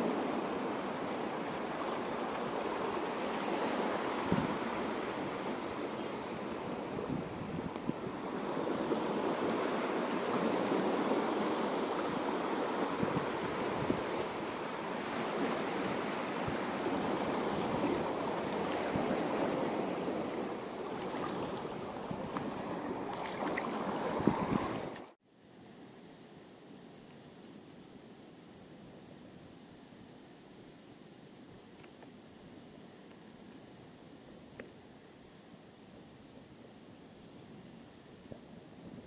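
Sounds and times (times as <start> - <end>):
small waves washing: 0.0 - 25.2.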